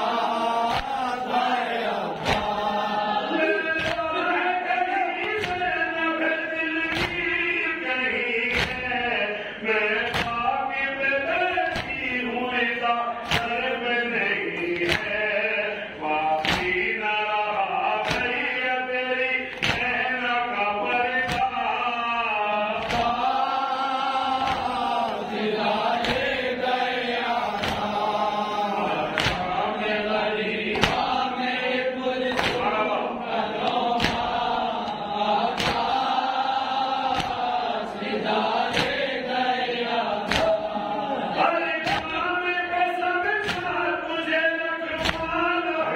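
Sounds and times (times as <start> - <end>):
men chanting a lament: 0.0 - 45.9.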